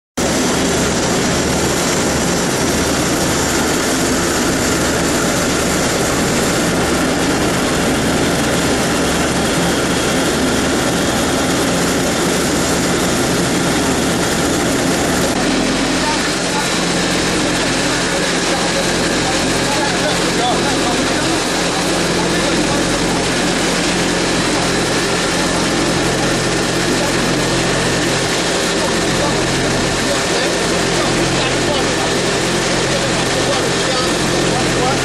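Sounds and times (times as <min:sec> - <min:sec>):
low hum: 0:00.2 - 0:19.8
centrifuge running: 0:00.2 - 0:35.0.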